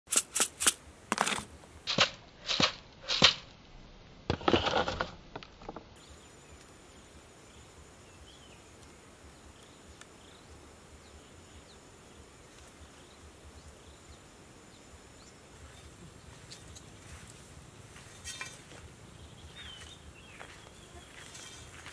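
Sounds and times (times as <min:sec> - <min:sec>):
insect-like whine: 0:06.0 - 0:21.9
bird chirps: 0:18.2 - 0:21.9.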